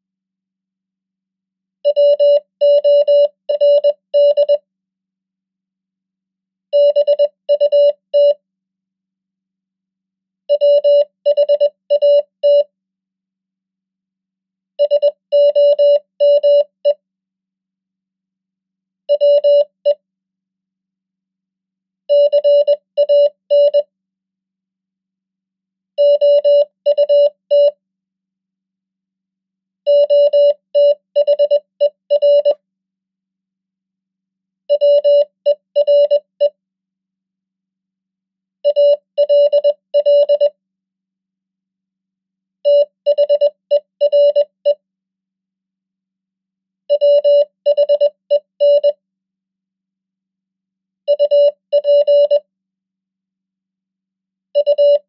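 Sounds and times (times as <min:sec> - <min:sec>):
morse code tone: 0:29.9 - 0:32.6, 0:34.7 - 0:36.5, 0:38.7 - 0:40.6, 0:42.7 - 0:44.8, 0:46.9 - 0:49.0, 0:51.1 - 0:52.4.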